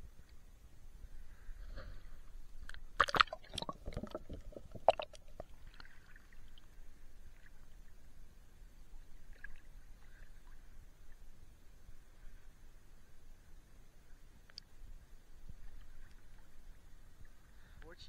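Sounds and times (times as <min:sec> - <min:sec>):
sea water splashing: 0:02.9 - 0:07.6.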